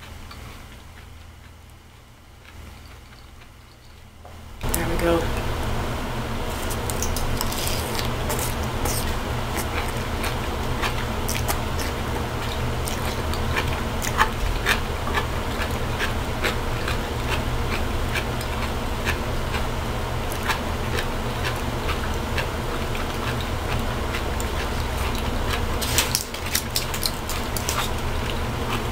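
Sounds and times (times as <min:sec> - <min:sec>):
steady low hum: 0:00.0 - 0:28.9
chewing and mouth clicks: 0:00.3 - 0:04.1, 0:06.5 - 0:19.7, 0:20.3 - 0:28.9
foil wrap crinkling: 0:06.5 - 0:10.0, 0:24.7 - 0:28.2.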